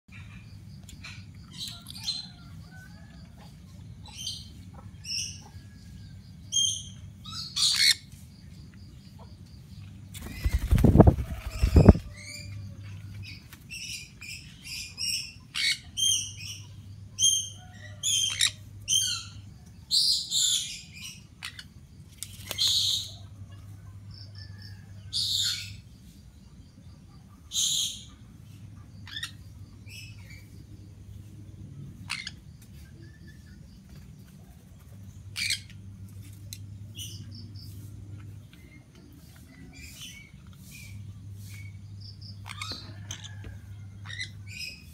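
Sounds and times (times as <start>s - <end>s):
parrots chirping and squawking: 6.5s - 8.1s, 13.8s - 19.4s, 20.0s - 21.8s, 29.0s - 30.4s, 32.0s - 32.4s, 35.3s - 35.8s, 42.3s - 44.9s.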